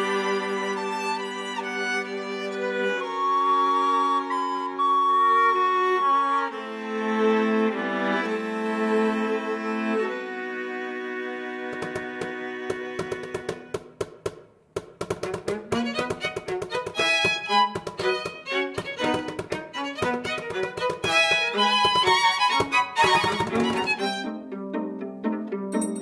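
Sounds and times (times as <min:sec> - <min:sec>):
strings film score: 0:00.0 - 0:26.0
tapping percussion: 0:11.7 - 0:24.2, 0:25.7 - 0:26.0.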